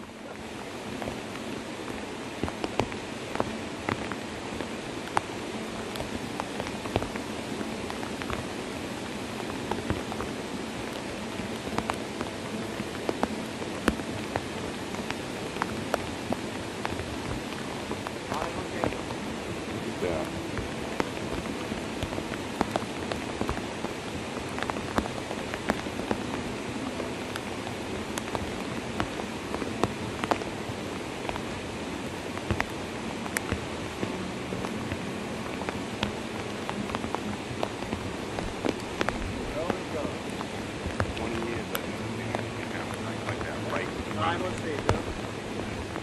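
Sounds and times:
flowing floodwater: 0:00.0 - 0:46.0
rain hissing: 0:00.0 - 0:46.0.

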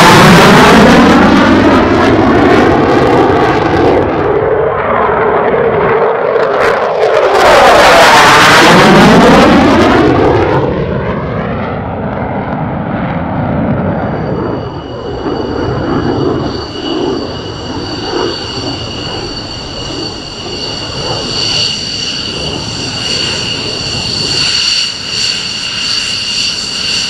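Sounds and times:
jet engines roaring flyby: 0:00.0 - 0:27.0
thin high whine: 0:13.7 - 0:27.0.

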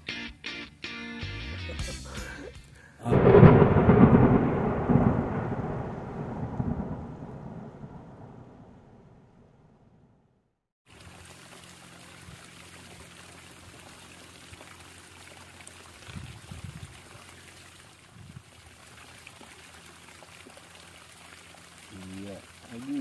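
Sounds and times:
low bumps: 0:03.1 - 0:10.1
running water trickling: 0:10.9 - 0:23.0.

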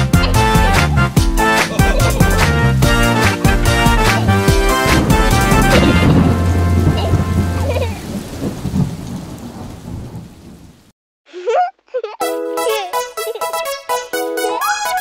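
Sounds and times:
song: 0:00.0 - 0:07.8, 0:12.2 - 0:15.0
steady rain: 0:00.0 - 0:10.9
low rumble of thunder: 0:04.4 - 0:10.8.

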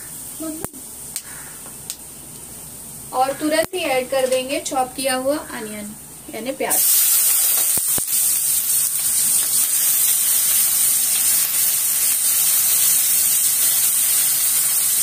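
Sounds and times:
onions sizzling in hot oil: 0:06.3 - 0:15.0.

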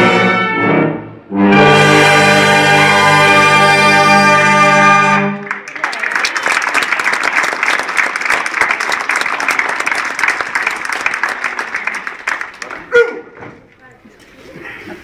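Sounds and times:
brass band chord: 0:00.0 - 0:05.6
crowd applauding: 0:04.3 - 0:13.3.

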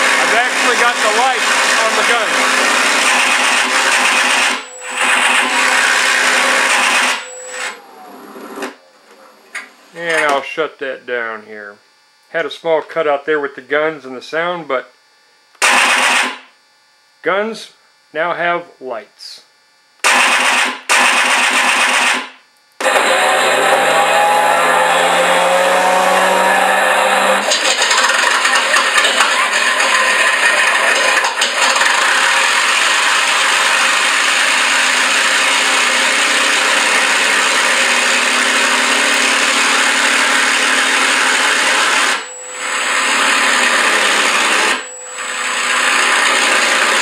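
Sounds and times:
fast pulsing electronic bursts: 0:00.0 - 0:07.7
simulated piston engine sound: 0:00.0 - 0:07.8.

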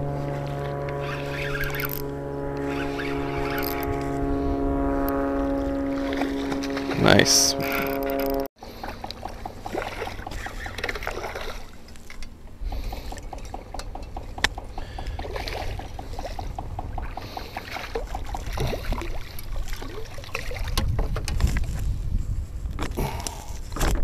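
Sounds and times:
wind on microphone: 0:00.0 - 0:11.8, 0:12.5 - 0:24.0
water splashing: 0:00.0 - 0:21.7
fishing reel clicking: 0:01.0 - 0:04.2, 0:07.1 - 0:19.5.

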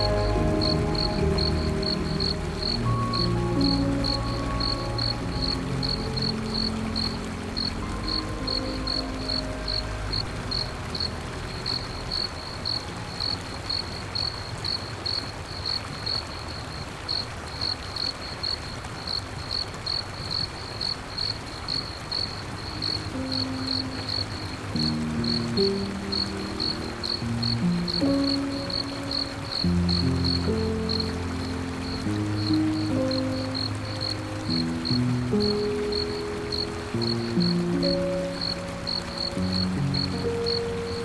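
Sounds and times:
low ambient music tones: 0:00.0 - 0:17.0, 0:21.7 - 0:41.0
soft steady hiss: 0:00.0 - 0:41.0
cricket chirping: 0:11.7 - 0:35.0, 0:35.9 - 0:41.0.

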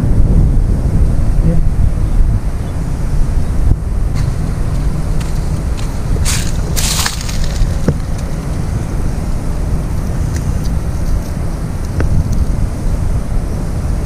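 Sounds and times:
wind buffeting microphone: 0:00.0 - 0:14.0
crackling rustles: 0:03.9 - 0:13.0.

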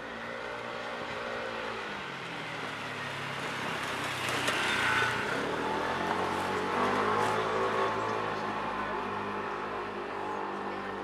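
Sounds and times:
vehicle engines running: 0:00.2 - 0:11.0
vehicle passing close: 0:02.7 - 0:10.8.

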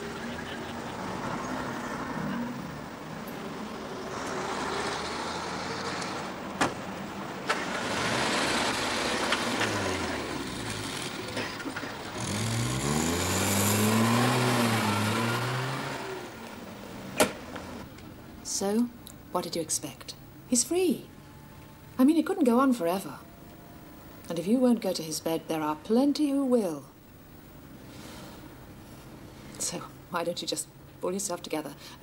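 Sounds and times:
small car engine revving: 0:00.0 - 0:06.4, 0:07.5 - 0:17.9
traffic noise: 0:00.0 - 0:26.0, 0:27.0 - 0:32.0.

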